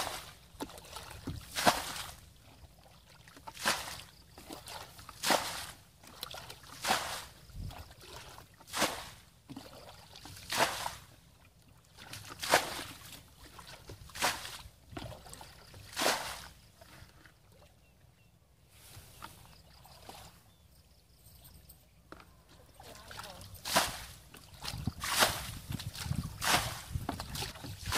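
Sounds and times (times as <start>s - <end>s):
bucket of water splashing: 0.0s - 11.3s, 11.9s - 17.6s, 22.6s - 27.9s.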